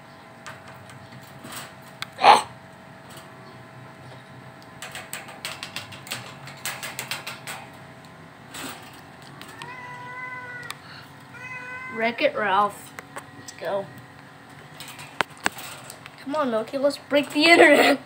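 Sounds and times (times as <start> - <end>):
cat meowing: 9.5 - 12.2.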